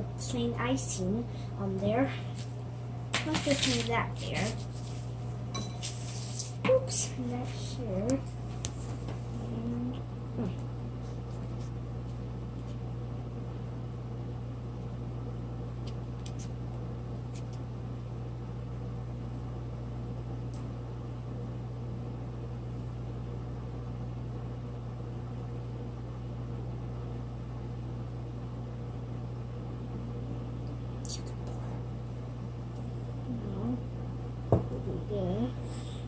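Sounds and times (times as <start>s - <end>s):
low machine hum: 0.0s - 36.0s.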